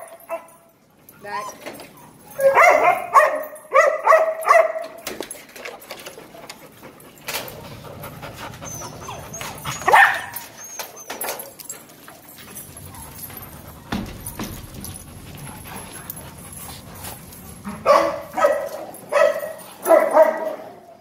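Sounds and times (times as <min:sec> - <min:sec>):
dogs barking: 0:00.0 - 0:00.7, 0:02.1 - 0:05.0, 0:08.3 - 0:10.6, 0:17.6 - 0:21.0.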